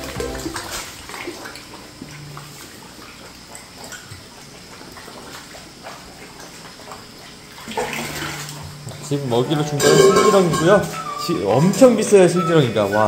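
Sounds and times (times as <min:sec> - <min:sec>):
small water splashes: 0:00.0 - 0:08.9
water bubbling and trickling: 0:00.0 - 0:13.0.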